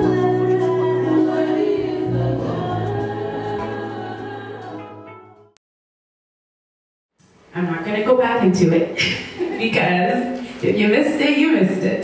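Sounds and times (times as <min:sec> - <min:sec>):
group singing: 0:00.0 - 0:05.0
keyboard: 0:00.0 - 0:05.6.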